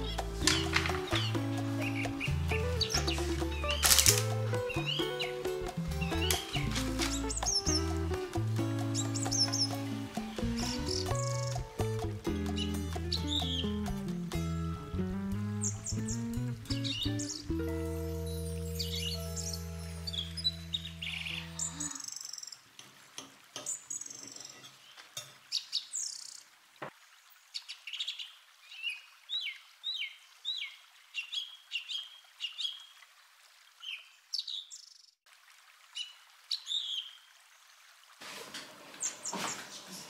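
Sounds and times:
songbirds chirping: 0.0 - 13.9, 14.9 - 22.7, 23.6 - 35.2
held music chord: 0.0 - 22.0.

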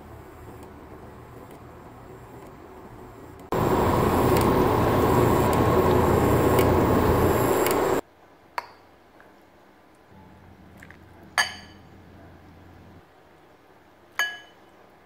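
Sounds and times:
soup boiling and bubbling: 3.5 - 8.0
light clink: 10.8 - 12.0, 14.2 - 14.7.

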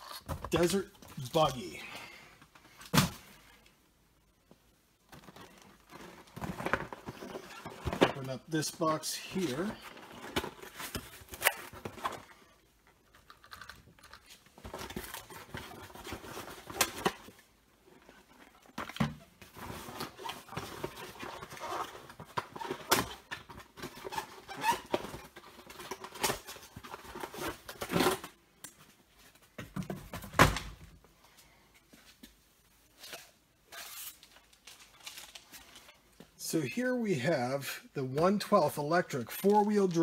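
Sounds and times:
packaging rustling and scraping: 5.1 - 28.4, 32.9 - 36.1.

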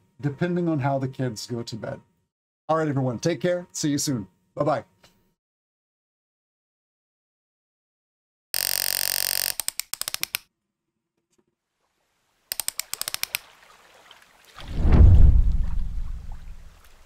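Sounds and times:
stutter of clicks: 8.6 - 10.5, 12.5 - 13.4
deep rumbling whoosh: 14.6 - 16.8.

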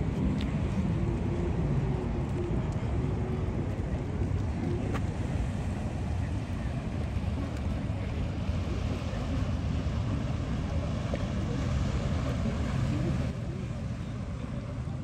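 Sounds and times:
wind buffeting microphone: 0.0 - 13.6.

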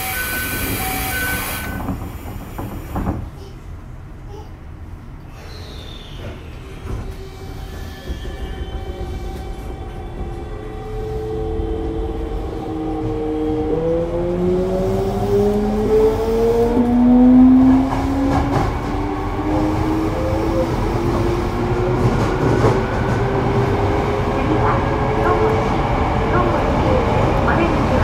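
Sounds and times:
train inverter whining: 0.0 - 3.2
wheels rumbling on rail: 0.0 - 5.4, 6.0 - 28.0.

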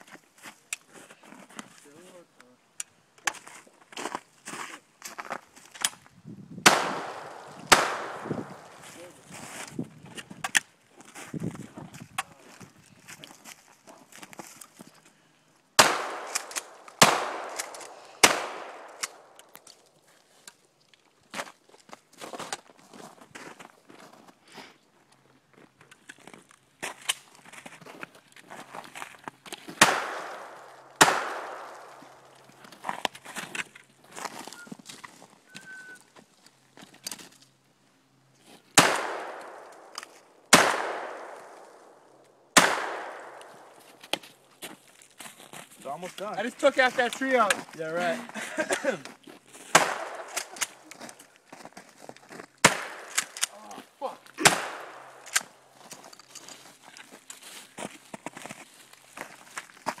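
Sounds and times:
shotgun shots with echo: 6.6 - 8.8, 15.8 - 19.2, 29.8 - 32.2, 38.8 - 39.6, 40.5 - 41.6, 42.6 - 43.4, 49.7 - 50.4, 52.6 - 53.2, 54.4 - 55.2.

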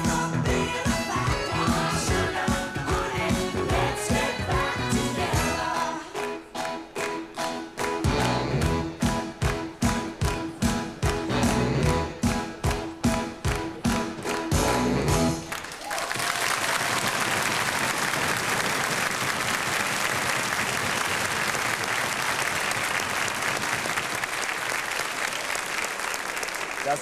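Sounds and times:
pop-rock band playing: 0.0 - 15.5
audience applauding: 15.4 - 27.0.

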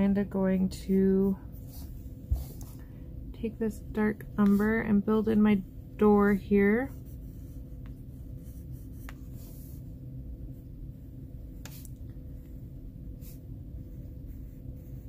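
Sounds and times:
steady low hum: 0.0 - 15.0
pencil scratching on paper: 1.5 - 2.8, 6.0 - 9.9, 13.2 - 15.0.

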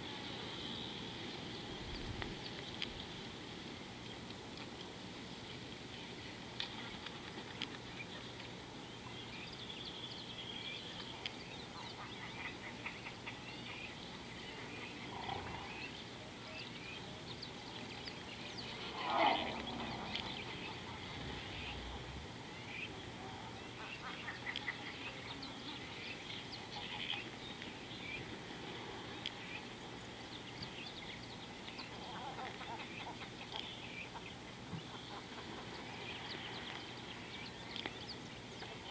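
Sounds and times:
birds chirping and calling: 9.0 - 28.3.

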